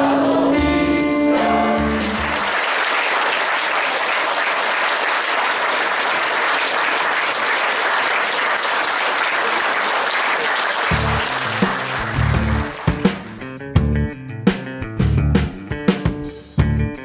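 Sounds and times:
audience applause: 1.9s - 13.5s.

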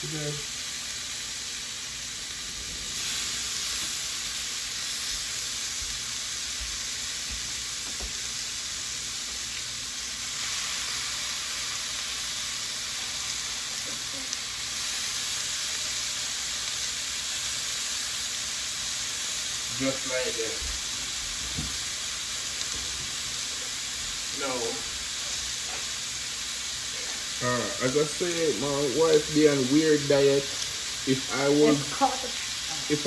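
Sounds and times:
meat sizzling in a skillet: 0.0s - 33.0s.

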